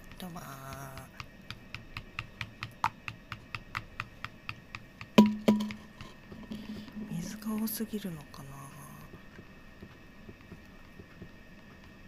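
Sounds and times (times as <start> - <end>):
knocks on ringing glass bowl: 5.2 - 5.8.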